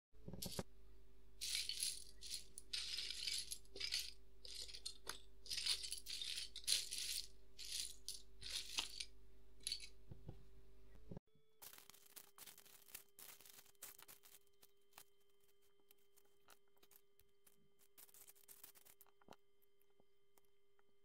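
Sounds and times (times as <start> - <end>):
rattling being shaken: 1.4 - 9.9.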